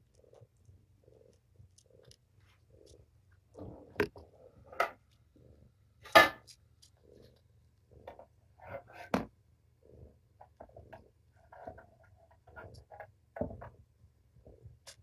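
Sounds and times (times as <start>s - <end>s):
kittens nursing clicks and rustles: 0.0s - 5.4s, 6.4s - 8.4s.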